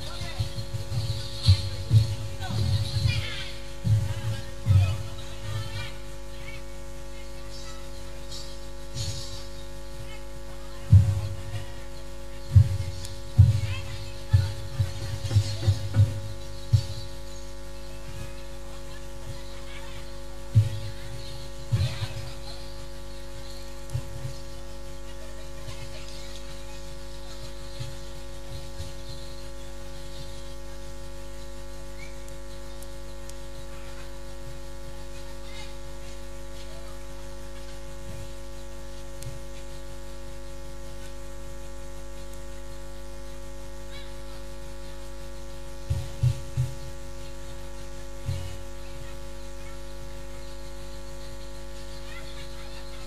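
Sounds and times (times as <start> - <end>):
dull low thumps: 0.0 - 5.7, 12.4 - 17.2
steady electrical hum: 0.0 - 53.0.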